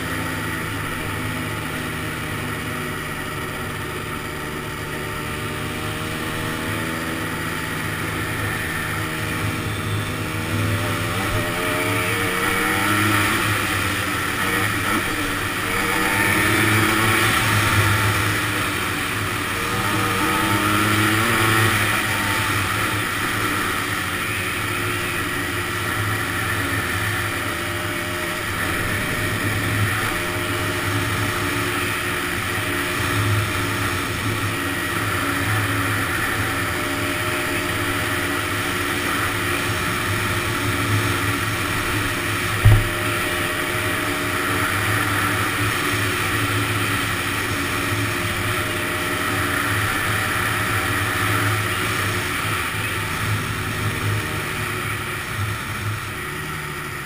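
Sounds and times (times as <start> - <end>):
two-stroke engine running: 0.0 - 57.0
sharp knock: 42.6 - 43.0.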